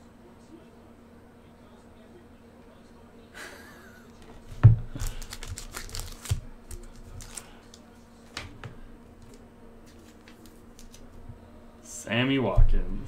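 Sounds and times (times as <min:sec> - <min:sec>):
card sleeve clicks and rustles: 0:04.9 - 0:07.8.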